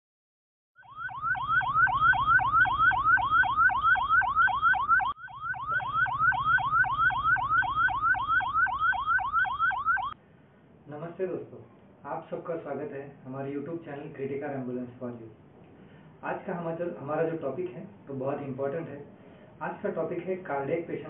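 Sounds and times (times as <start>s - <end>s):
electronic siren yelping: 0.8s - 10.2s.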